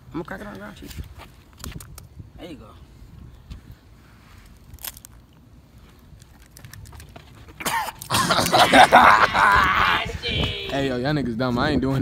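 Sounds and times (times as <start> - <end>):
person coughing and gagging: 7.6 - 9.7.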